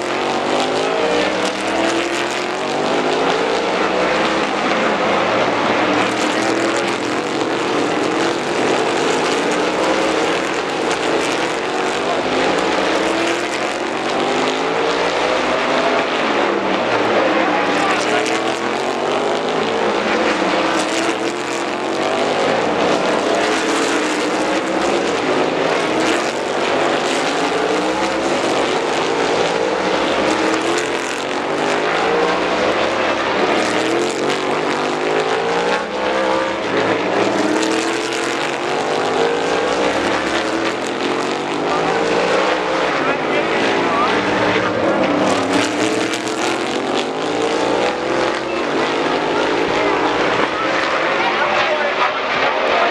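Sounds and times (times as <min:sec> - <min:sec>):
race car engines revving: 0:00.0 - 0:52.9.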